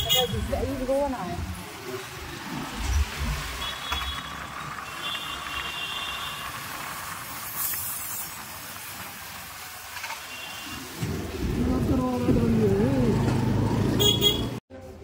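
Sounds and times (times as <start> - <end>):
distant traffic hiss: 0.0 - 10.7.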